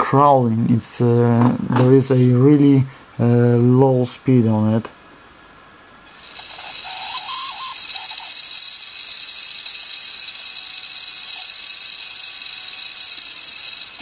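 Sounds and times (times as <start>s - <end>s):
motor and gearbox whirring: 6.1s - 14.0s.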